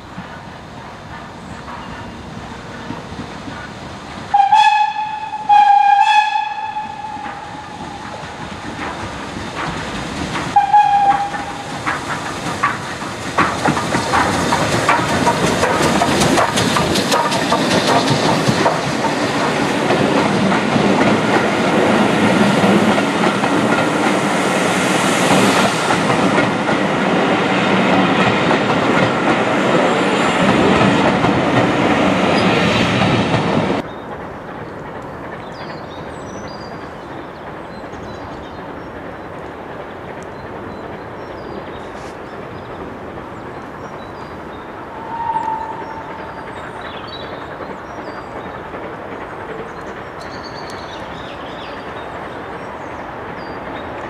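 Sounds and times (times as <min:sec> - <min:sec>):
train rumbling past: 0:00.0 - 0:54.0
steam locomotive whistle: 0:04.3 - 0:07.9, 0:10.6 - 0:11.7, 0:44.9 - 0:46.0
wheels clicking over rail joints: 0:06.7 - 0:54.0.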